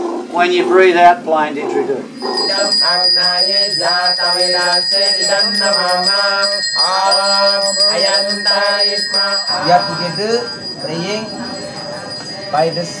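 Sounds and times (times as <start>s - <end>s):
voices chanting: 1.7s - 13.0s
hand bell ringing: 2.2s - 13.0s.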